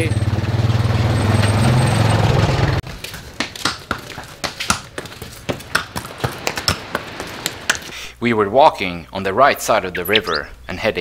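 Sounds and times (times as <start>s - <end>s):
engine running close by: 0.0s - 2.8s
hooves clip-clopping on cobblestones: 2.8s - 7.9s.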